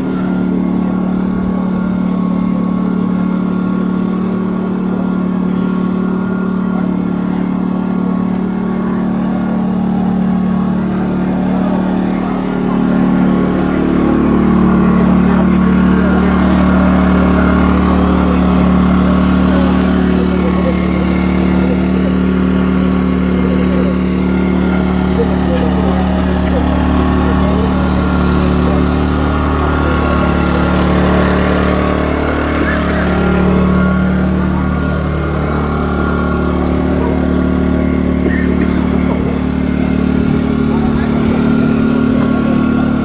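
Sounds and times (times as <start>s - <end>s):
engine humming steadily: 0.0s - 43.0s.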